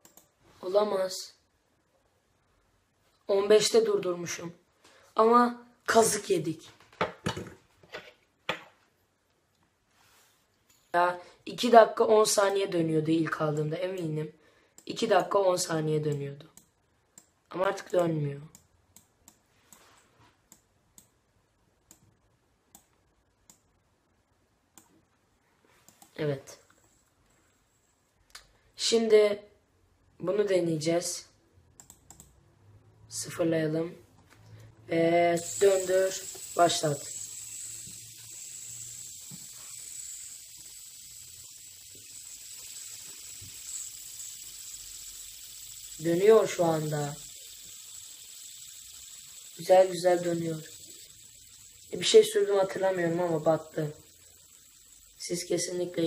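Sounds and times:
faint sharp clicks: 0:31.8 - 0:32.4
fidget spinner whirring: 0:34.9 - 0:56.0.

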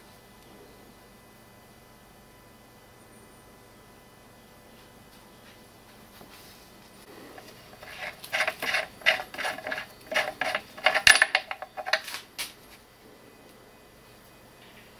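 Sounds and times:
metal shear blades clinking: 0:07.8 - 0:12.1.

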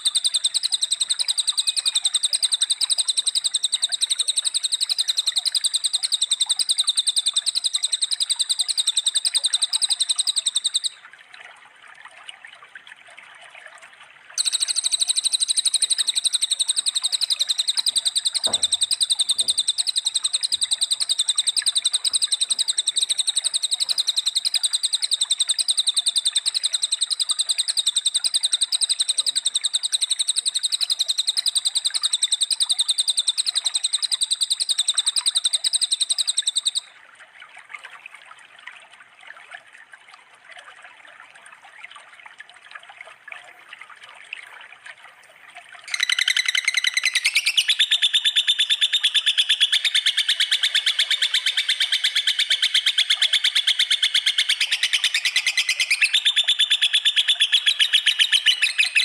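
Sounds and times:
running water: 0:00.0 - 0:30.8, 0:34.6 - 0:59.0
faint low thump: 0:18.4 - 0:19.6
songbird singing high notes: 0:45.9 - 0:52.4.

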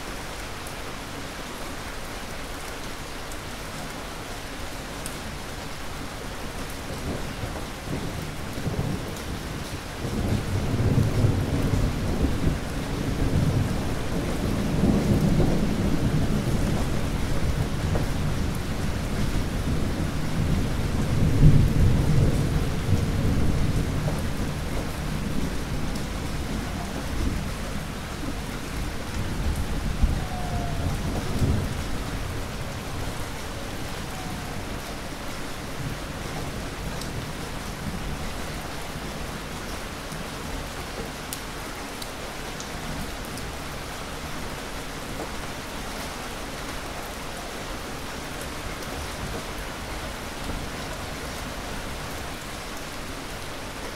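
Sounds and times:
heavy rain falling: 0:00.0 - 0:53.9
rolling thunder: 0:07.0 - 0:38.0.

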